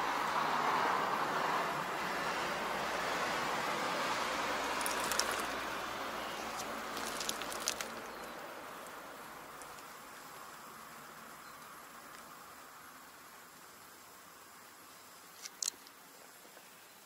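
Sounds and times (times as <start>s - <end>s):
passing vehicle road noise: 0.0s - 11.8s.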